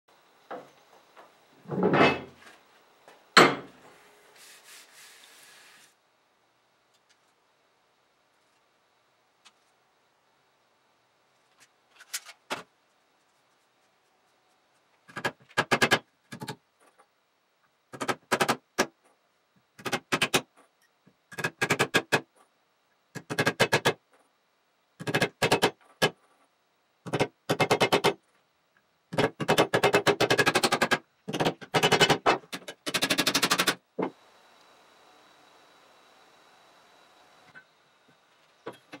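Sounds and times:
hammer driving nails into wood: 18.0s - 18.9s, 27.1s - 28.2s, 29.2s - 33.8s.

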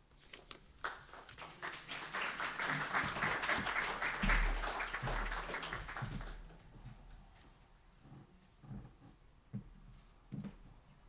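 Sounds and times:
audience applauding: 0.8s - 6.7s.

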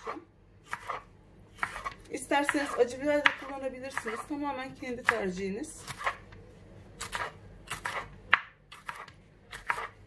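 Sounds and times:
knife chopping on wooden board: 0.0s - 4.4s, 5.0s - 6.3s, 7.0s - 10.0s.

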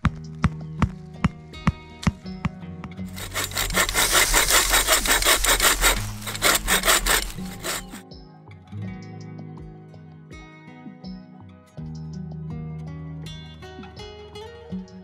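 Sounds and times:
bow saw rasping through log: 3.1s - 8.0s
hatchet striking wood: 3.1s - 8.0s.

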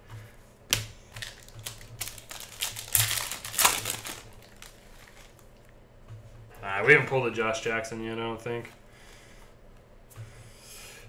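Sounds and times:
cards clicking and snapping: 0.7s - 5.6s
plastic wrapper crinkling: 1.1s - 5.6s.

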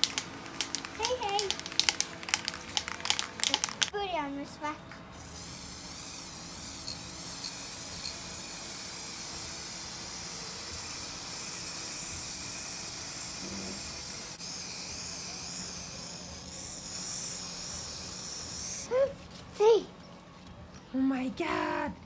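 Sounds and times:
spray paint can hissing: 0.0s - 3.9s, 5.2s - 18.9s.

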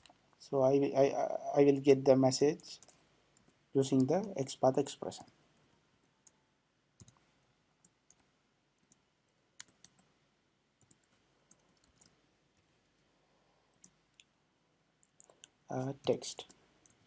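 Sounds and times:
faint keyboard typing: 2.3s - 6.4s, 7.0s - 10.2s, 10.8s - 13.1s, 13.7s - 14.4s, 15.0s - 17.0s.

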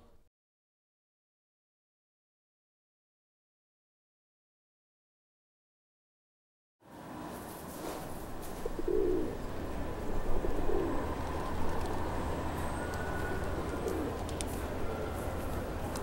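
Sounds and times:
outdoor background hum: 6.8s - 16.0s
pigeons cooing: 8.4s - 16.0s.

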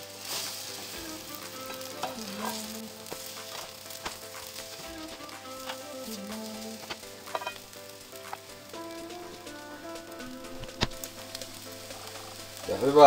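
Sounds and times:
bread sizzling in a pan: 0.0s - 13.0s
spatula clicking and scraping: 0.3s - 8.5s.

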